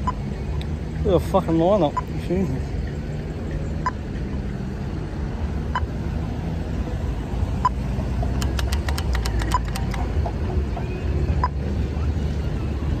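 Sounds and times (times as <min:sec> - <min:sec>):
road traffic rumble: 0:00.0 - 0:13.0
rapid sharp ticks: 0:08.2 - 0:10.3.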